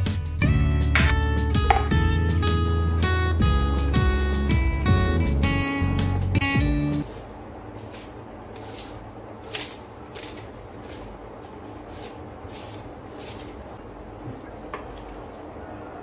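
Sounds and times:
acoustic guitar music: 0.0s - 7.0s
onion skins crackling: 7.0s - 13.8s.

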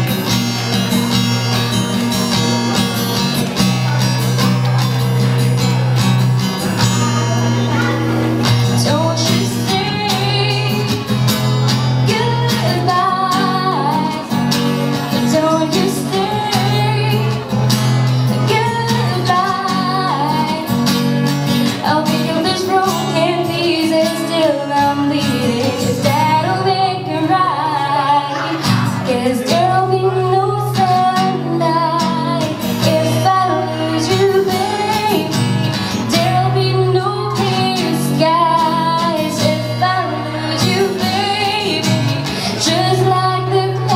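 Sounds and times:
acoustic guitar strumming: 0.0s - 43.9s
woman singing pop ballad: 8.7s - 11.4s, 12.0s - 17.5s, 18.3s - 20.9s, 21.5s - 43.9s.

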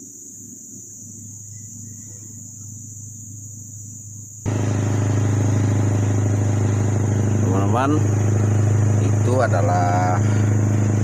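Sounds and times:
insects buzzing: 0.0s - 11.0s
boat engine drone: 4.5s - 11.0s.

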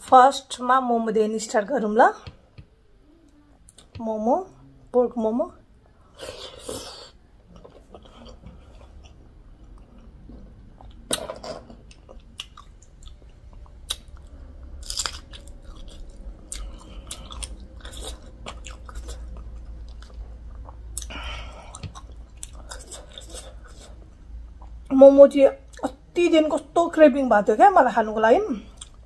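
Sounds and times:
close-miked chewing: 11.8s - 24.9s, 28.7s - 29.0s.

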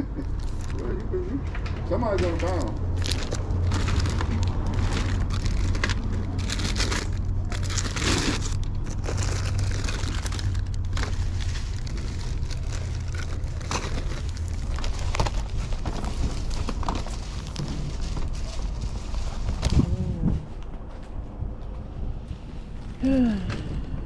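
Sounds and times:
steady low rumble: 0.0s - 24.0s
plastic packaging crinkling: 2.4s - 19.9s.

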